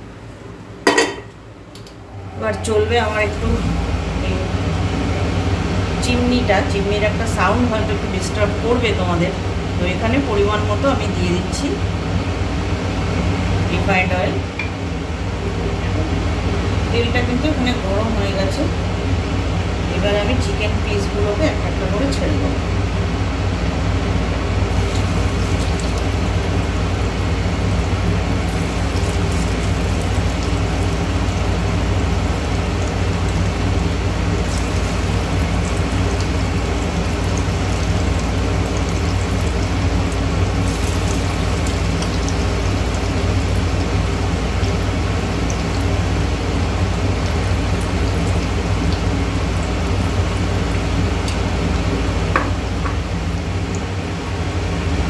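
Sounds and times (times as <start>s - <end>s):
exhaust fan drone: 0.0s - 55.0s
chicken sizzling in oil: 24.4s - 55.0s.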